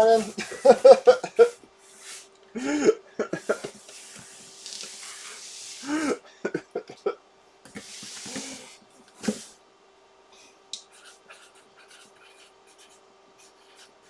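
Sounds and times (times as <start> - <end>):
marker scratching on cardboard: 10.9 - 14.0.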